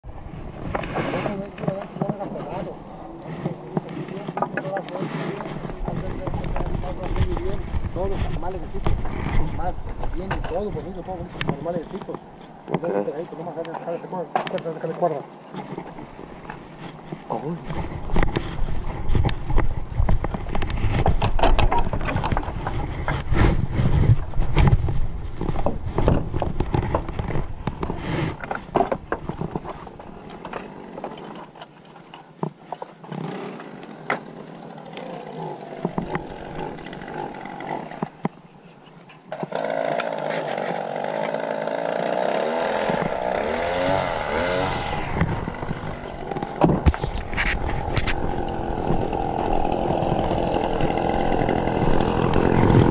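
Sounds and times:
small gas engine revving: 33.1s - 38.1s, 39.4s - 52.9s.

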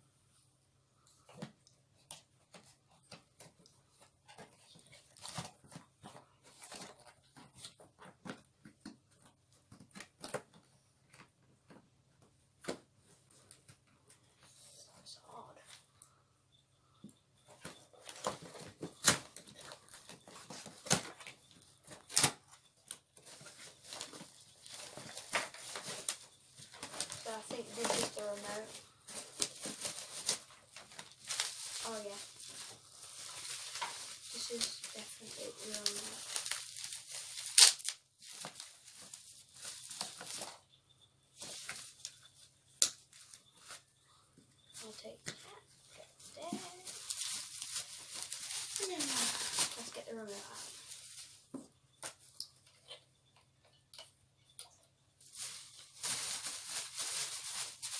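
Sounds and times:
bubble wrap crinkling: 2.0s - 8.1s, 17.4s - 40.7s, 41.3s - 44.0s, 44.6s - 52.7s, 55.2s - 57.9s
sharp plastic crackles: 17.5s - 40.6s, 46.3s - 52.8s, 54.0s - 57.9s.

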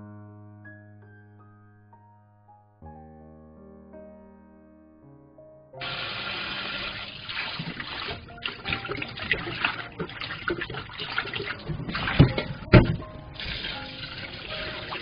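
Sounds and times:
tap water pouring into steel bowl: 5.8s - 15.0s
hands squeezing leaves in water: 7.2s - 12.7s
loud thumps: 11.7s - 13.4s.

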